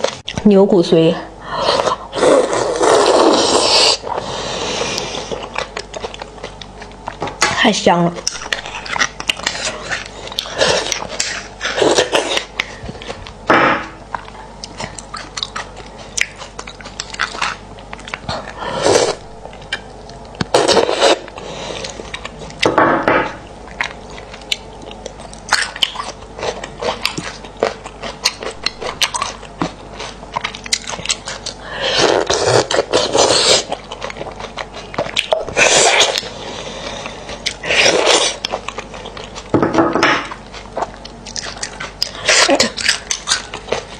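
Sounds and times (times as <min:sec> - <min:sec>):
chewing: 0:01.8 - 0:07.6, 0:08.2 - 0:22.7, 0:23.6 - 0:39.6, 0:40.2 - 0:43.9.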